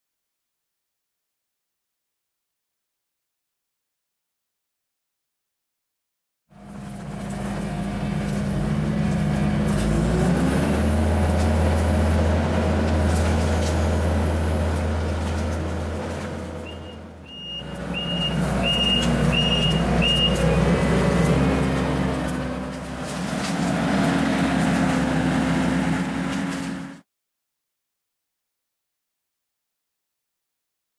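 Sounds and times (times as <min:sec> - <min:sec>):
diesel engine under load: 0:06.5 - 0:27.0
short high beeps: 0:16.7 - 0:20.4.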